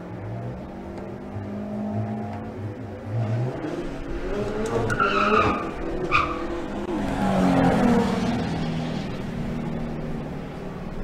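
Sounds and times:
racing car engines revving: 0.0 - 11.0
high tyre squeal: 4.7 - 6.7.

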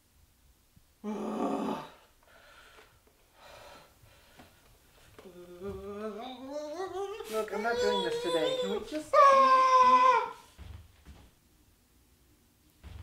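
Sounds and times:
faint breaths: 1.7 - 6.1
wordless vocal sound: 5.2 - 8.9.

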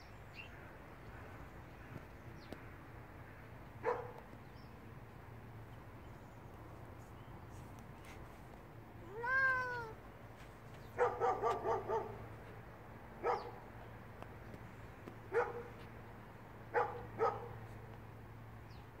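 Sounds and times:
cat chirping: 9.0 - 10.0.

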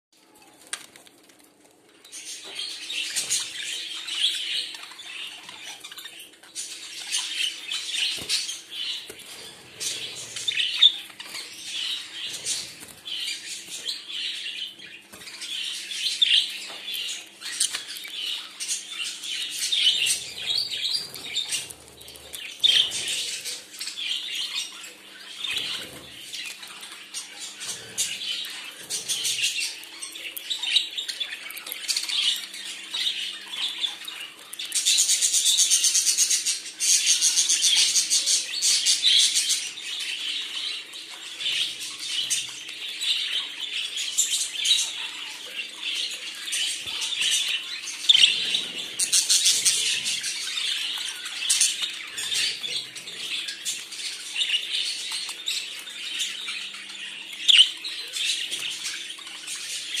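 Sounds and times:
budgerigars chattering: 41.4 - 60.0.

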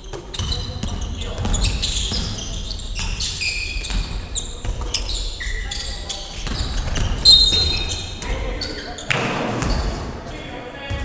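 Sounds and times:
basketball dribbling on wood floor: 0.0 - 2.4
sneakers squeaking: 0.0 - 11.0.

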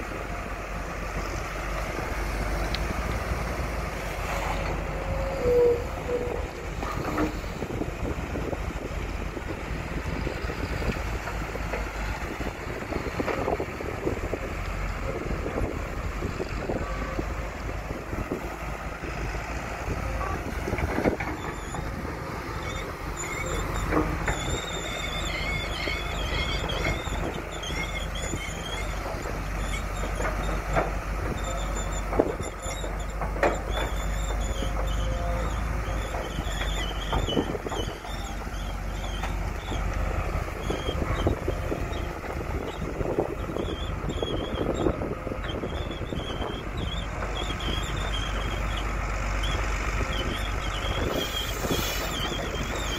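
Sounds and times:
excavator engine rumble: 0.0 - 52.9
wavering high squeal: 21.3 - 30.1, 31.4 - 39.8, 40.5 - 52.9.

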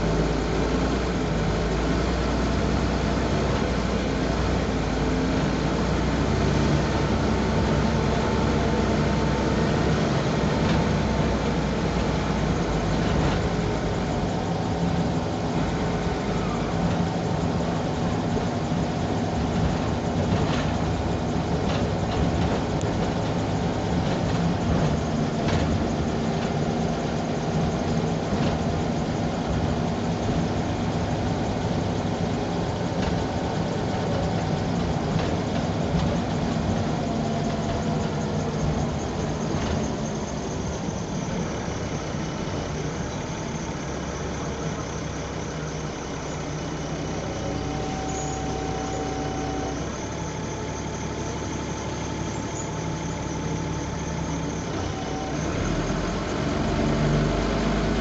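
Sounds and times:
bus body rattles: 0.0 - 58.0
bus diesel engine running: 0.0 - 58.0.

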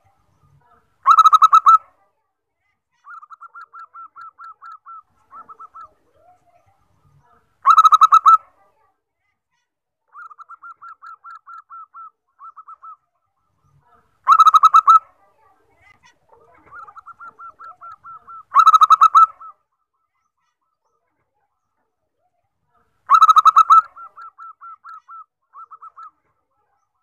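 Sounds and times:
dove cooing: 3.3 - 6.4, 16.3 - 19.6, 23.1 - 26.2.

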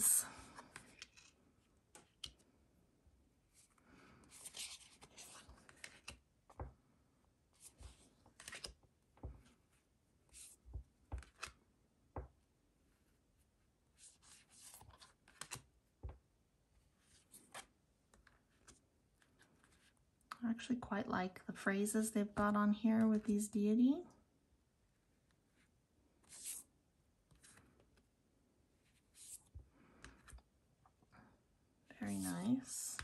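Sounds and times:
cards rustling: 0.4 - 1.4, 3.6 - 6.2, 7.6 - 8.8, 10.4 - 11.6, 14.1 - 15.7, 32.1 - 33.0
cards shuffling swishes: 26.2 - 26.7, 29.1 - 29.5.

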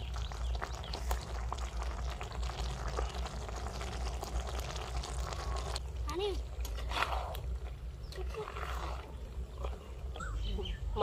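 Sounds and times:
bubbles popping in simmering pot: 0.0 - 8.1.

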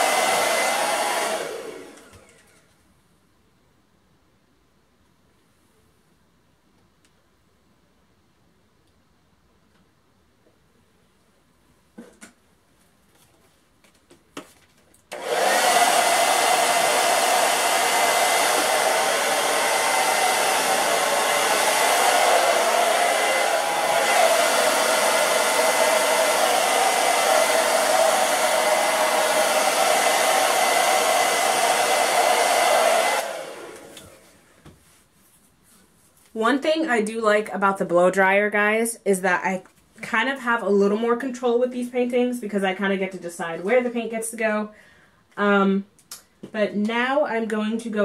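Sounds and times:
hair dryer running: 0.0 - 2.6, 15.1 - 34.8.

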